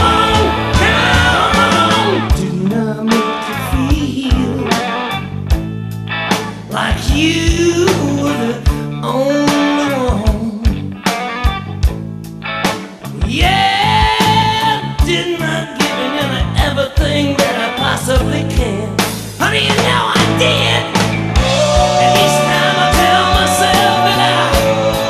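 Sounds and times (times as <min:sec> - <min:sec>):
drums playing: 0:00.0 - 0:02.6, 0:19.0 - 0:25.0
electric guitar: 0:00.0 - 0:25.0
pitch-bending lead guitar line: 0:00.0 - 0:25.0.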